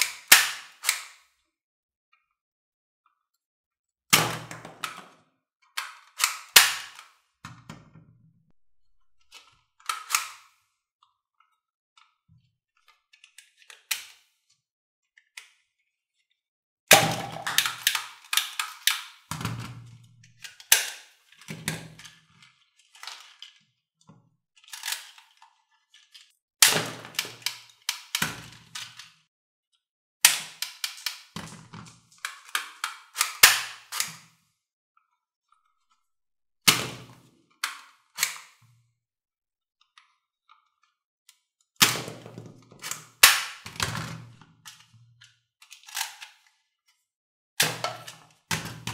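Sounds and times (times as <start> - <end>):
toy guns snapping and clacking: 0.0 - 1.2, 5.8 - 7.2, 9.3 - 10.6, 16.9 - 19.3, 20.2 - 22.2, 24.6 - 25.4, 26.6 - 29.1, 30.2 - 34.3, 37.6 - 38.6, 42.8 - 43.8, 45.6 - 46.5, 47.6 - 48.9.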